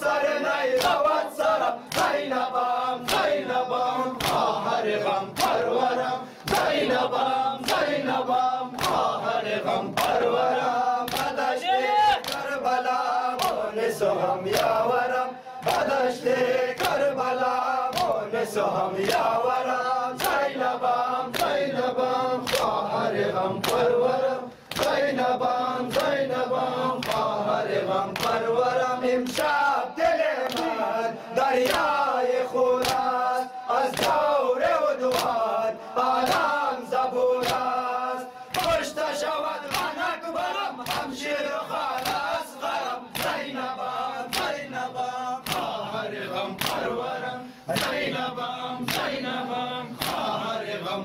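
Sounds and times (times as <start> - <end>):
men chanting a lament: 0.0 - 51.0
hands slapping bare chests: 0.7 - 3.4, 4.0 - 5.8, 6.4 - 7.0, 7.6 - 8.1, 8.7 - 9.2, 9.9 - 12.6, 13.3 - 13.7, 14.5 - 14.9, 16.7 - 17.1, 17.9 - 20.7, 21.3 - 21.7, 22.4 - 22.8, 23.6 - 24.0, 24.6 - 25.0, 25.8 - 27.4, 28.1 - 28.5, 29.2 - 29.6, 30.4 - 30.8, 31.6 - 32.0, 32.8 - 33.2, 33.8 - 34.3, 35.0 - 35.5, 36.1 - 36.6, 37.4 - 37.8, 38.5 - 38.9, 39.6 - 40.0, 40.8 - 41.2, 41.9 - 42.4, 43.1 - 43.6, 44.2 - 44.6, 45.4 - 45.8, 46.5 - 47.1, 47.7 - 48.1, 48.8 - 49.2, 49.9 - 50.4.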